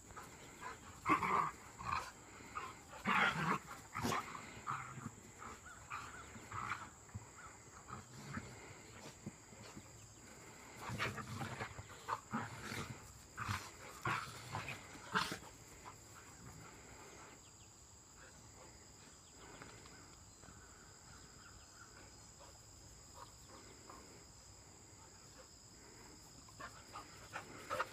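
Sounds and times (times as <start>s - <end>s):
dogs play-growling: 0.0s - 17.4s, 25.2s - 27.9s.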